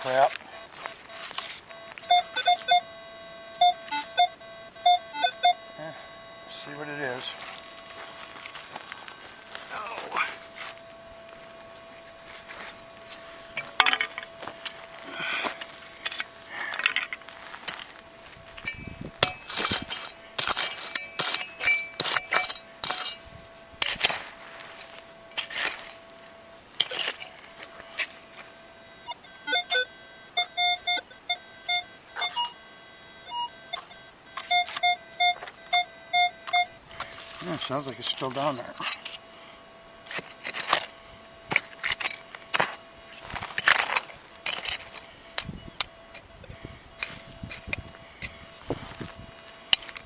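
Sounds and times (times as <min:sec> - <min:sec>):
metal detector short beeps: 0:00.0 - 0:08.2, 0:18.5 - 0:23.2, 0:26.8 - 0:39.2, 0:43.6 - 0:48.6
pick striking rocky soil: 0:11.6 - 0:23.2, 0:23.8 - 0:26.0.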